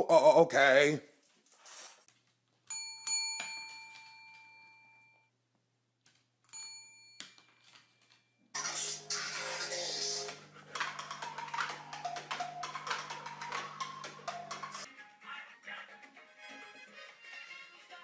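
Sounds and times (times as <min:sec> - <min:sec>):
metal service bell dings: 0:02.7 - 0:05.1, 0:06.5 - 0:07.3.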